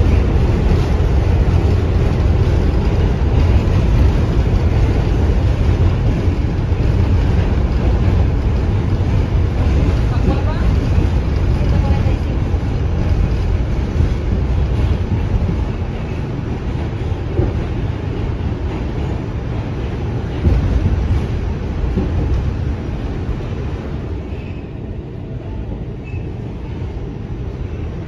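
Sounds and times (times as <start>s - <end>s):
subway train rumbling and rattling: 0.0s - 28.0s.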